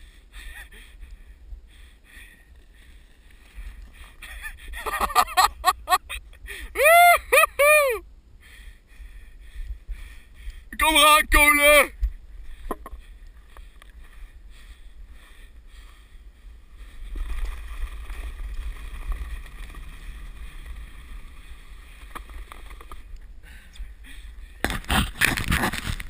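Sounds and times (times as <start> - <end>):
wind rumble on microphone: 8.0 - 10.7
sled scraping on snow: 16.9 - 23.1, 24.6 - 26.0.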